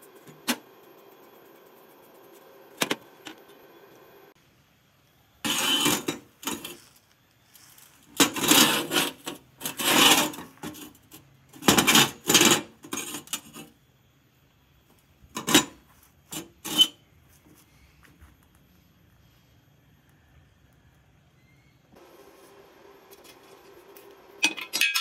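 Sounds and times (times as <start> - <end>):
metal scraping and clinking: 5.4 - 13.8, 15.4 - 17.0, 23.2 - 25.0.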